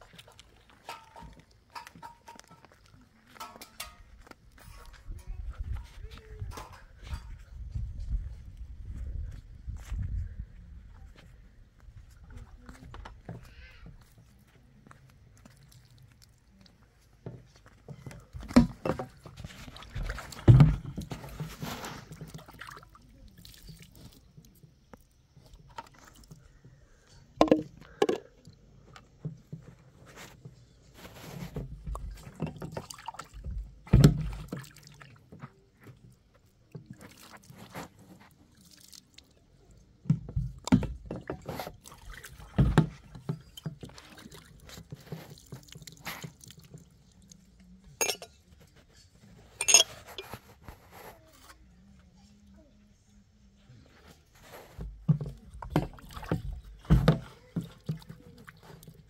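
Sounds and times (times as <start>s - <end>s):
glasses clinking: 48.0s - 48.4s, 49.6s - 50.4s.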